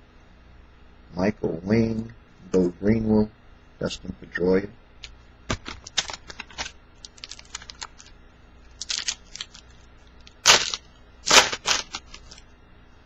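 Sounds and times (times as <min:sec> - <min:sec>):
wrapper tearing open: 0:05.6 - 0:08.2, 0:08.8 - 0:12.4
plastic wrapper crinkling: 0:05.6 - 0:12.4.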